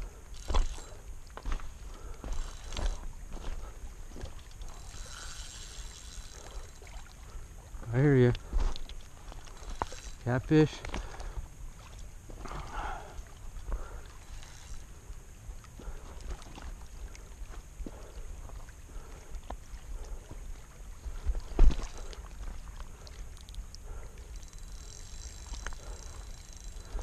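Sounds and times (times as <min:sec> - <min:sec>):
light clicks and scrapes: 0:00.3 - 0:06.9, 0:08.1 - 0:11.4.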